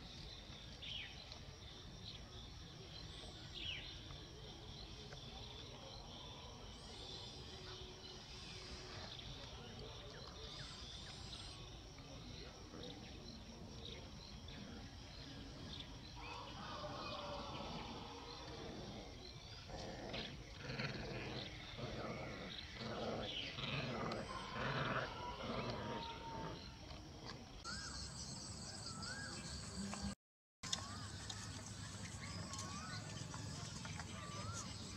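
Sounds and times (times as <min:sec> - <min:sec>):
dogs growling: 0:05.6 - 0:27.8, 0:31.3 - 0:34.9.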